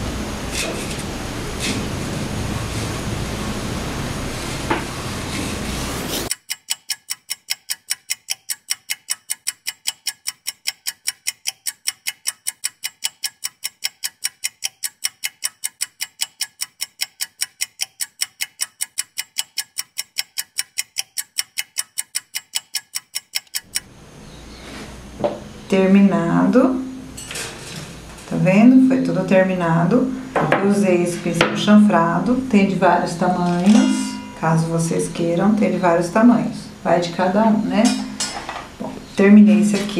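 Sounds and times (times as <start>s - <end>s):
clock ticking quickly: 6.3s - 23.8s.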